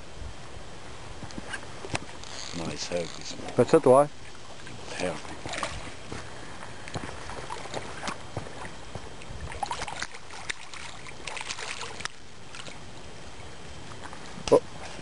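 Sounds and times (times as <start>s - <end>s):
water splashing at shoreline: 2.0s - 13.6s.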